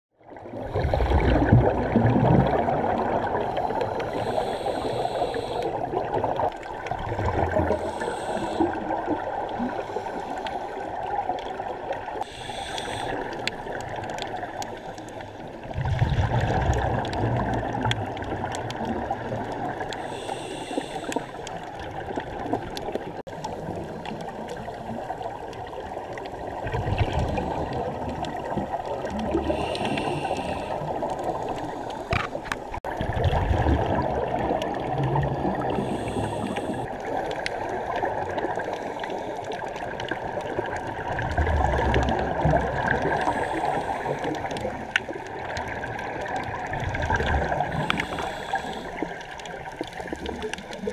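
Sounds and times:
exhaled bubbles rushing: 0.2 - 10.1, 15.4 - 20.0, 21.4 - 50.9
muffled water wash: 0.4 - 50.9
regulator inhale hiss: 3.3 - 5.8, 7.7 - 9.0, 9.6 - 10.9, 12.1 - 13.5, 20.0 - 21.6, 29.3 - 32.8, 35.6 - 37.0, 43.0 - 44.5, 47.6 - 49.2.

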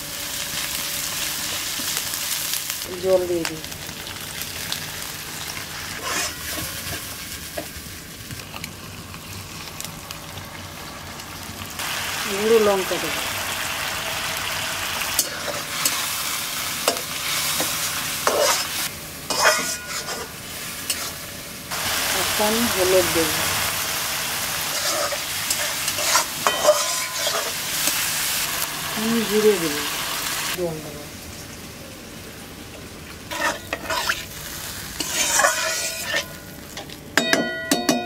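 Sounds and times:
paste sizzling in a wok: 0.0 - 37.0
spatula scraping a pan: 5.9 - 7.1, 16.9 - 21.2, 24.7 - 27.6, 33.3 - 34.3, 35.0 - 36.4.

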